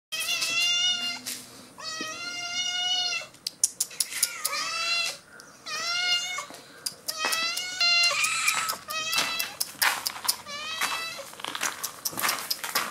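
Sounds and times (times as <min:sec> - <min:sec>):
cats meowing: 0:00.2 - 0:11.4
sharp clicks: 0:03.4 - 0:04.6, 0:06.8 - 0:10.4, 0:11.5 - 0:12.9.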